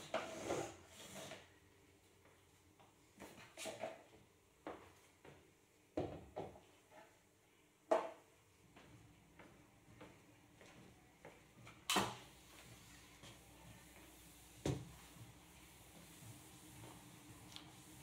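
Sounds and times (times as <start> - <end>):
mop swishing across floor: 12.2 - 18.0.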